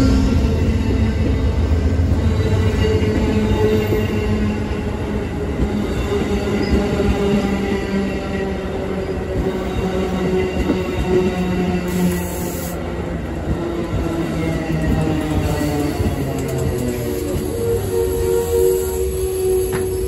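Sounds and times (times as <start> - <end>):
train wheels rumbling on track: 0.0 - 20.0
train wheels squealing: 6.2 - 7.4, 14.8 - 20.0.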